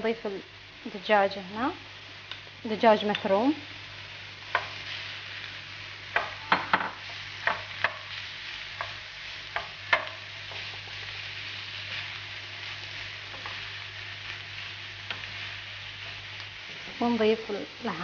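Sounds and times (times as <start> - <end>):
meat sizzling in a frying pan: 0.0 - 18.0
spoon knocking against pan: 6.2 - 8.0.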